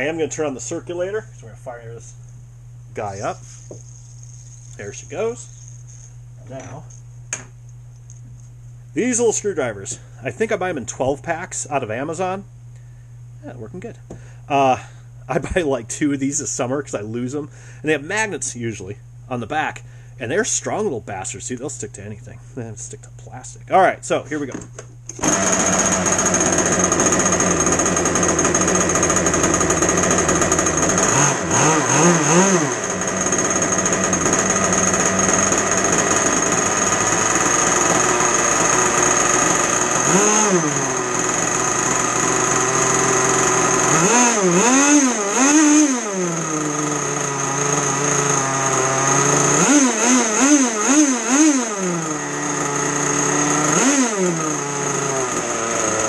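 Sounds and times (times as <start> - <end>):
two-stroke engine revving: 25.2 - 56.0.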